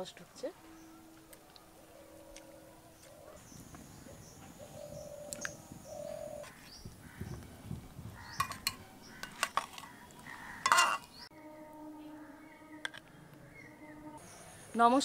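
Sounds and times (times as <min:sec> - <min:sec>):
cutlery and dishes clinking: 0:08.4 - 0:09.9, 0:10.6 - 0:11.1.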